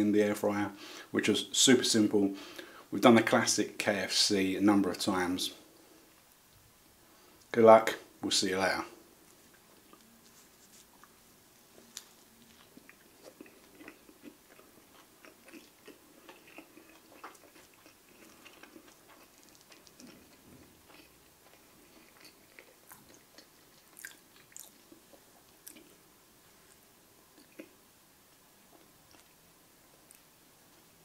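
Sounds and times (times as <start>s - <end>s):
person chewing with crunches: 9.3s - 27.8s, 28.7s - 30.3s.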